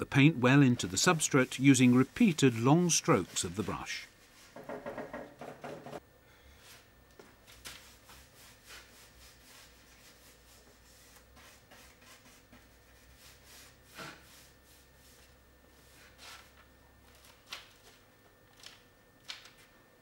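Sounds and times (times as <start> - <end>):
paintbrush swishing on wood: 0.8 - 4.6.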